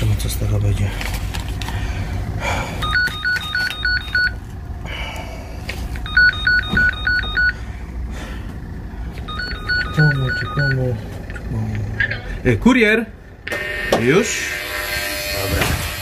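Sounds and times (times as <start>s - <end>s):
warbling intercom ringing tone: 9.3s - 11.0s.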